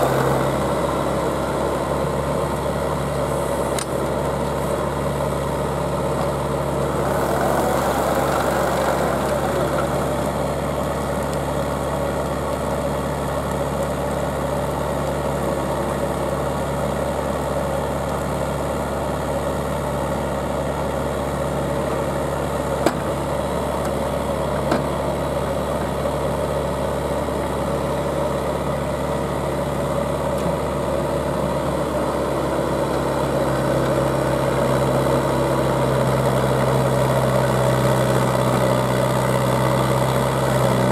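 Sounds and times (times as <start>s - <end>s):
drill rig engine running: 0.0s - 12.3s.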